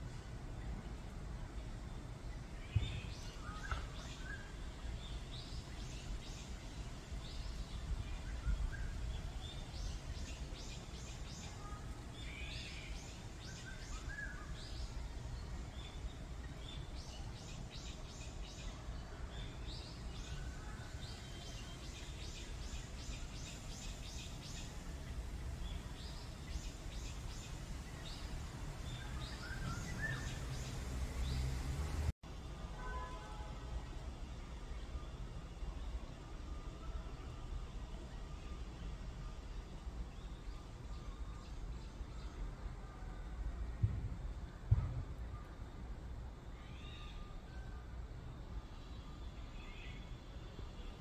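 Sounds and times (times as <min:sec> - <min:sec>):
songbirds calling: 0:00.0 - 0:32.1.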